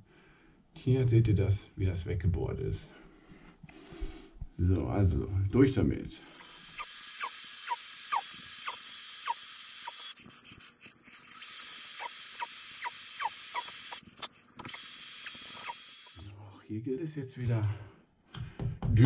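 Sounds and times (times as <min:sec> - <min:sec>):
electric drill boring tile: 0:06.3 - 0:10.2, 0:11.1 - 0:14.0, 0:14.6 - 0:16.3.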